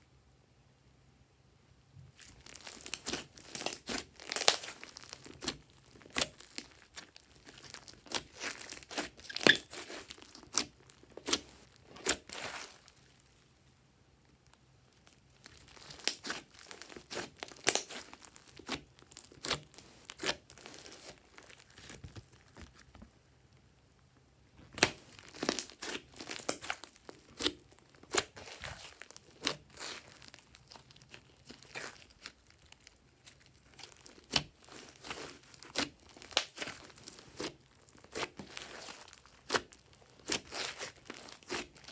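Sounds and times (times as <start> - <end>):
slime squishing with crackling pops: 2.1 - 13.5, 14.2 - 23.7, 24.5 - 41.9.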